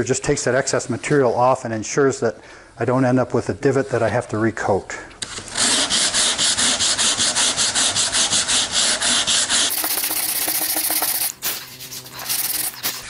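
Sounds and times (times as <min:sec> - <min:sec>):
sandpaper scrubbing filler: 0:05.6 - 0:13.0.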